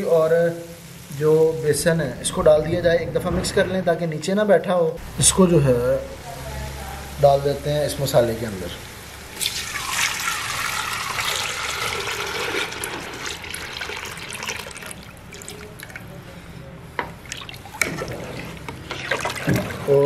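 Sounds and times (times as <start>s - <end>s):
batter gushing into a pot: 9.4s - 16.1s, 17.3s - 20.0s.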